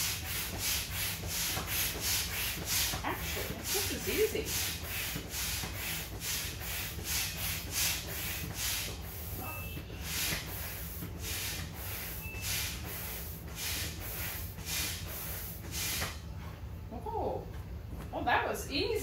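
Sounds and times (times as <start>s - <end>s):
hand air pump hissing: 0.0s - 9.4s, 10.0s - 16.2s.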